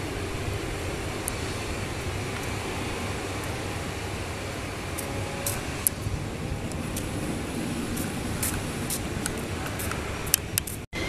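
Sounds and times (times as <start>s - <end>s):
distant jet engines rumbling: 0.0s - 11.0s.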